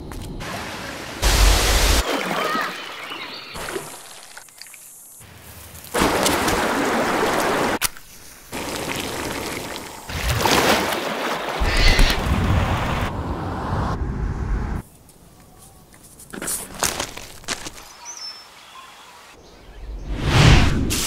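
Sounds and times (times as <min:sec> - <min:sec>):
creek water splashing over rocks: 0:02.0 - 0:04.8, 0:05.8 - 0:07.8, 0:08.4 - 0:12.3.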